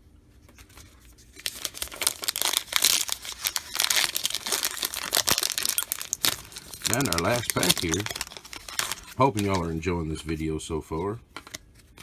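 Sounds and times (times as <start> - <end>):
plastic wrapper crinkling: 0.6 - 9.9.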